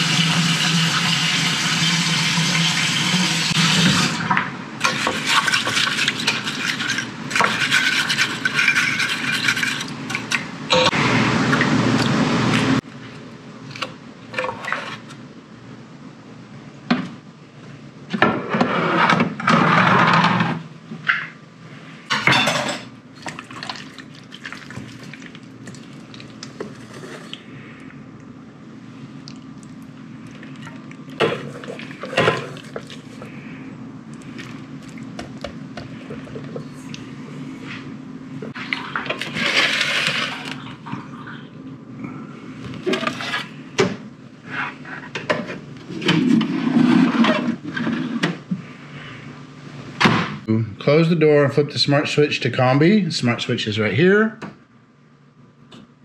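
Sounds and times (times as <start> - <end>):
steady low hum: 3.5 - 56.0
pans and dishes clattering: 22.1 - 22.9.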